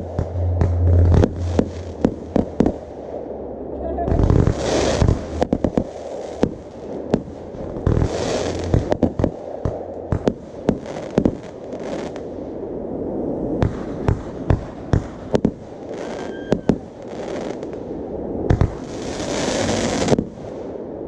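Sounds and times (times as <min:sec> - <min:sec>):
fireworks bangs and pops: 0:00.0 - 0:02.9, 0:04.2 - 0:12.2, 0:13.6 - 0:17.8, 0:18.5 - 0:20.7
firework whistling: 0:00.0 - 0:03.2, 0:15.9 - 0:17.7
fireworks crackling: 0:00.0 - 0:03.3, 0:03.9 - 0:12.3, 0:13.7 - 0:17.8, 0:18.5 - 0:20.8.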